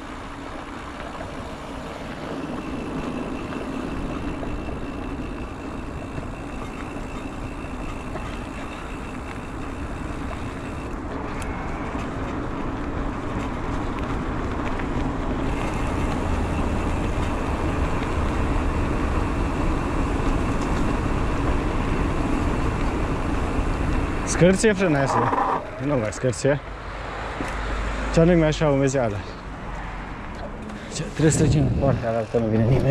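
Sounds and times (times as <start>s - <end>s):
faint high motor whine: 0.0s - 12.2s, 15.4s - 26.4s
bike tyres rolling: 0.0s - 27.8s.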